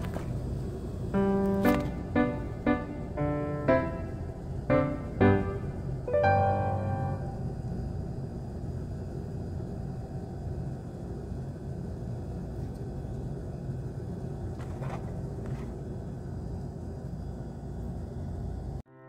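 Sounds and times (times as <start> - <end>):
low outdoor rumble: 0.0 - 18.8.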